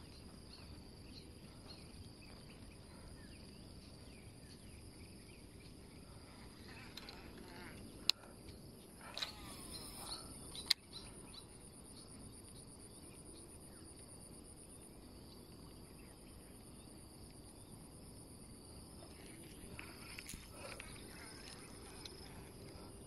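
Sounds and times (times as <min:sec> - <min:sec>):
insects chirring: 0:00.0 - 0:23.0
sharp clicks: 0:10.5 - 0:10.9.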